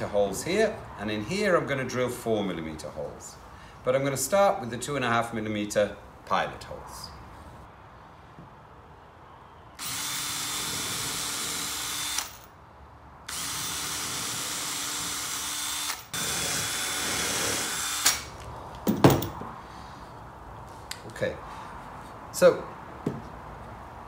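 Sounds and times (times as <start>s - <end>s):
cordless drill whining: 9.8s - 12.5s, 13.3s - 18.3s
sharp knocks: 18.8s - 19.5s.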